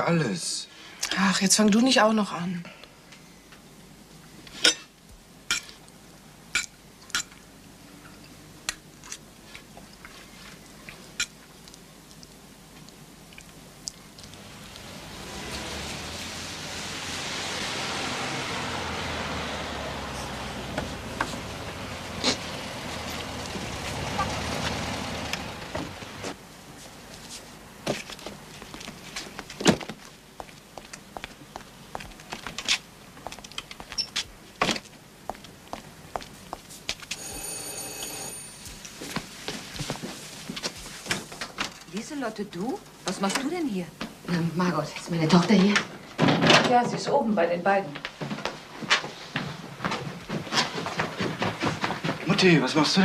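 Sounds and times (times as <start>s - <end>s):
cutlery clinking on plates: 4.6s - 4.9s, 5.5s - 5.8s.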